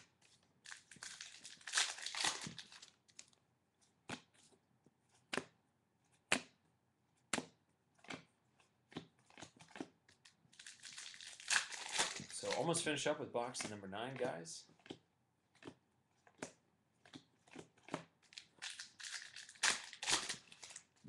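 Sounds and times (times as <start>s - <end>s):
cards rustling and crinkling: 0.0s - 3.4s, 7.3s - 15.0s, 15.6s - 21.0s
cards snapping: 0.7s - 2.9s, 17.8s - 20.9s.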